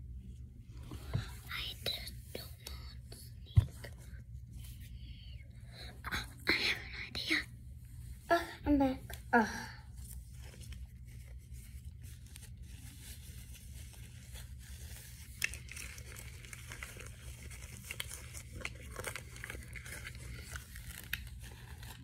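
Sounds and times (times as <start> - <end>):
plastic packaging crinkling: 10.0 - 22.0.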